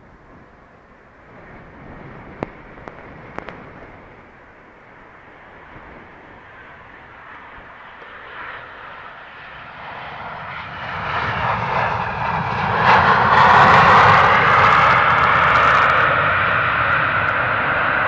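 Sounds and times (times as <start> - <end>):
jet engines in reverse thrust: 0.0 - 18.0
low rumble: 9.7 - 18.0.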